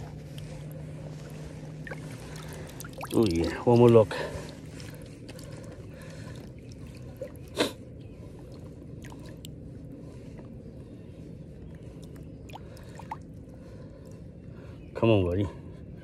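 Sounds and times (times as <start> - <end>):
creek water running: 0.0 - 9.6
faint drips: 0.3 - 9.6.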